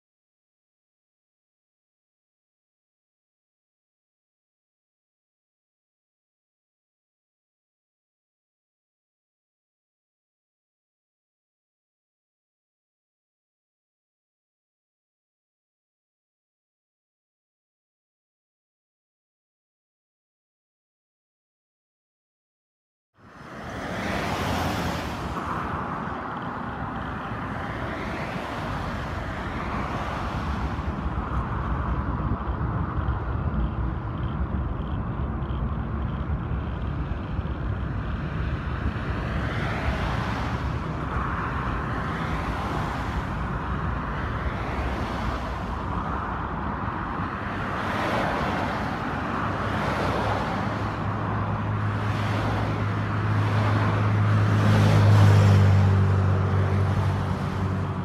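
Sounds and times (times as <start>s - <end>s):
low traffic rumble: 23.2s - 58.0s
vehicles passing: 23.2s - 58.0s.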